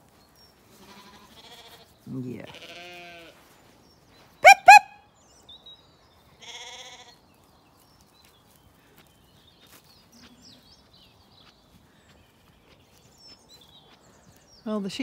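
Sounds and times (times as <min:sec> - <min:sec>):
short low bird call: 0:04.4 - 0:05.0.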